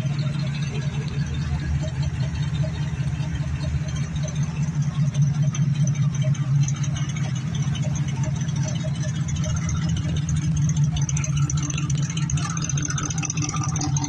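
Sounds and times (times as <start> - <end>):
pickup truck engine idling: 0.0 - 14.0.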